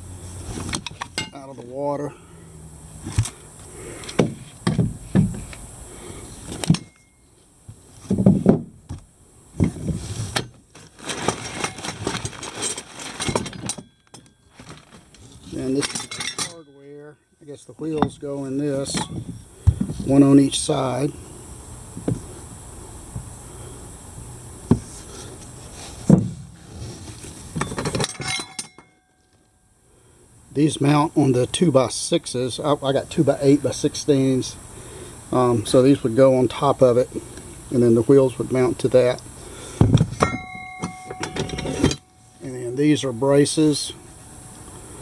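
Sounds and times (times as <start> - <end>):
packing paper rustling: 10.7 - 13.4, 14.5 - 15.5
steel brackets clattering: 11.2 - 19.4, 27.6 - 29.0, 39.9 - 43.9
knocks in cardboard box: 26.0 - 26.5.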